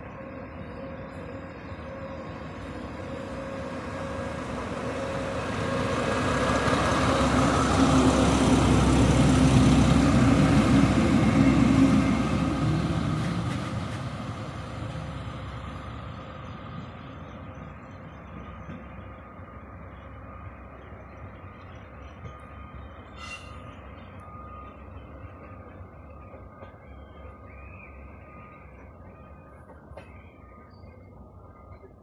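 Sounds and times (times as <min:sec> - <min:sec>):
diesel locomotive engine drone: 0:00.0 - 0:32.0
train wheels rumbling: 0:00.0 - 0:32.0.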